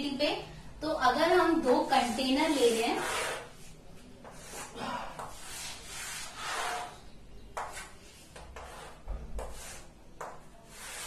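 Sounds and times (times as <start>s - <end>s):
chalk scraping on blackboard: 1.7s - 7.0s, 7.6s - 11.0s.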